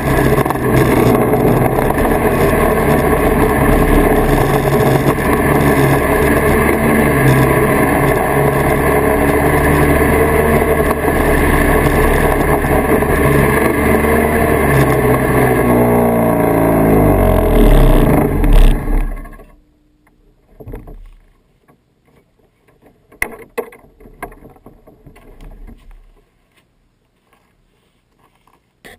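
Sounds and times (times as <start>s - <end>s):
snowmobile engine running: 0.0s - 19.6s
faint knocks and clicks: 20.0s - 26.3s.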